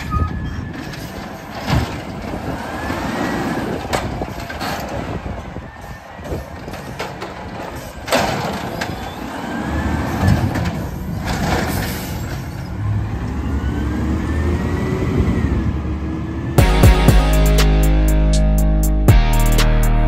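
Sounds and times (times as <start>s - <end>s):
garbage cart knocking down: 6.9s - 9.1s
music: 16.6s - 20.0s.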